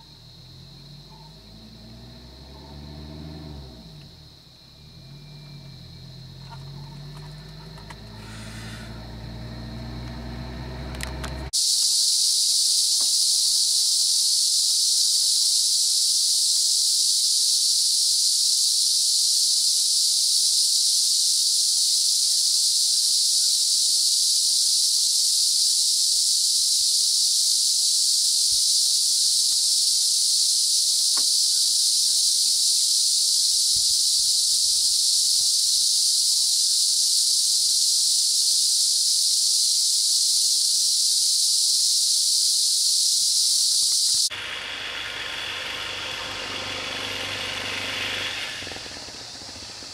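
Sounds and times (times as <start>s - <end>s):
vehicle engine idling: 0.0s - 11.5s, 44.2s - 49.9s
high-pitched insect drone: 0.0s - 49.9s.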